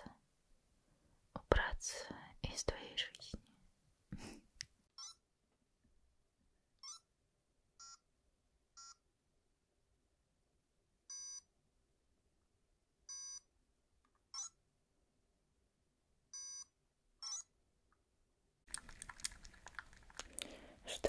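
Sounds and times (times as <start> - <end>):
electronic toy beeping: 5.0 - 5.2, 6.8 - 7.1, 7.8 - 8.0, 8.8 - 9.0, 11.1 - 11.5, 13.1 - 13.5, 14.3 - 14.6, 16.4 - 17.5.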